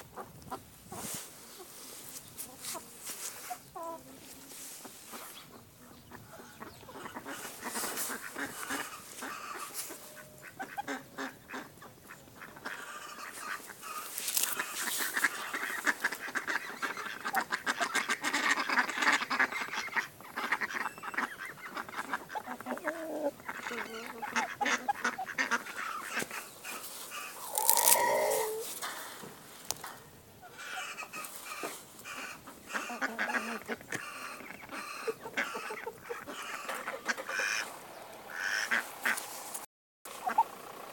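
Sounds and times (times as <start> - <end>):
chickens clucking: 0.0 - 39.3, 40.1 - 40.9
beaks pecking at ground: 4.8 - 37.6
chicken call falling in pitch: 27.4 - 28.7.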